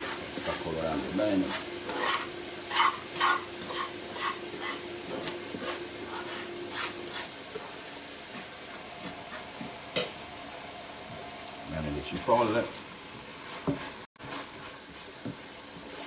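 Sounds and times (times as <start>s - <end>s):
metal spatula scraping frying pan: 0.0s - 7.8s.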